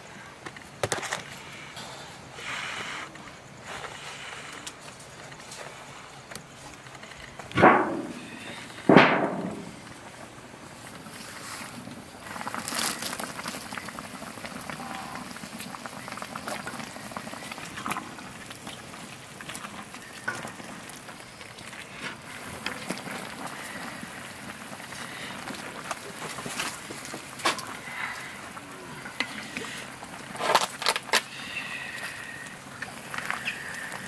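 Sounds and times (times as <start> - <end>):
pot boiling and bubbling: 0.0 - 34.0
sharp crackles and pops: 0.0 - 34.0.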